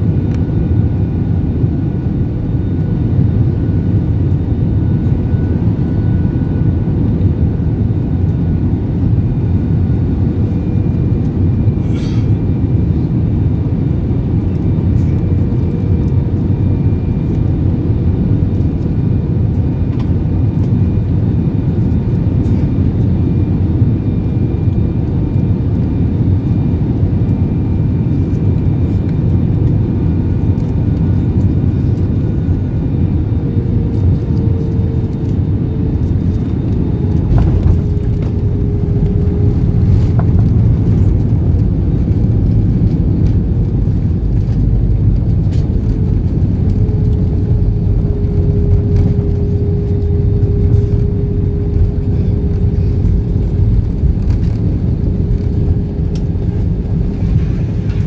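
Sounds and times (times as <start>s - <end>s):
engines and rushing air roar: 0.0s - 58.0s
humming tone: 23.2s - 58.0s.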